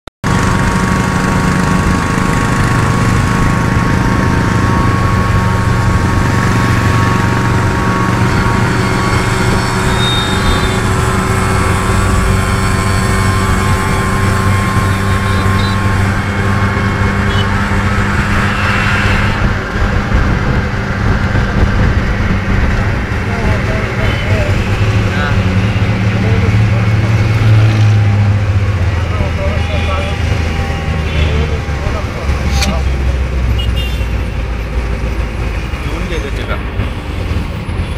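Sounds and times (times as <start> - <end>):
small engine running evenly: 0.2 - 19.2, 19.9 - 37.9
road and wind noise: 0.2 - 37.9
motorcycle cruising alongside: 0.3 - 37.9.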